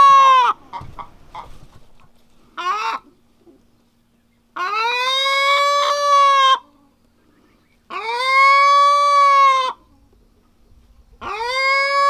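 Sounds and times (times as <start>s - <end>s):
hen screaming: 0.0s - 0.6s, 4.6s - 6.6s, 7.9s - 9.8s, 11.2s - 12.0s.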